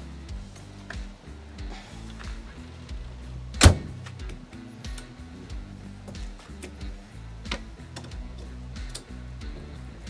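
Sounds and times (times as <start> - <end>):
background music with bass line: 0.0 - 10.0.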